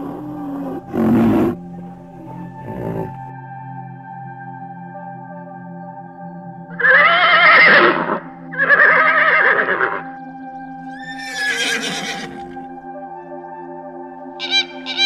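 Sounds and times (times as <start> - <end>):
horse whinnying: 0.0 - 3.3, 6.8 - 10.0, 10.9 - 12.6
soft ambient music: 0.0 - 15.0.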